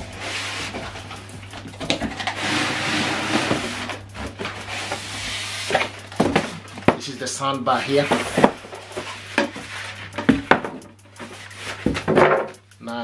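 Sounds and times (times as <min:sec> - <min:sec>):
foam and cardboard scraping: 0:02.1 - 0:10.4, 0:11.2 - 0:12.3.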